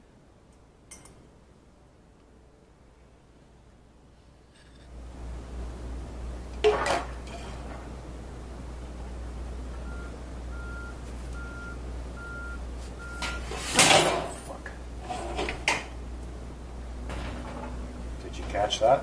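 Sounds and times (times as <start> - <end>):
steady low hum: 0.0 - 19.0
short beeps: 9.8 - 13.4.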